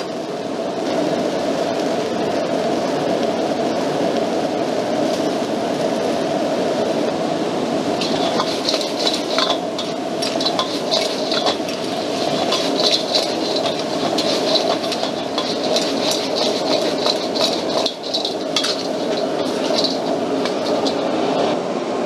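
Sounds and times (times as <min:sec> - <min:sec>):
gas burner roaring: 0:00.0 - 0:22.0
ladle scraping a wok: 0:08.0 - 0:21.1.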